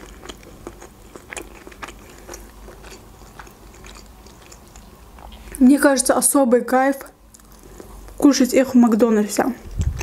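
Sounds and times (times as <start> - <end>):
person chewing crunchy food: 0.0 - 5.6, 7.3 - 8.2, 9.7 - 10.0.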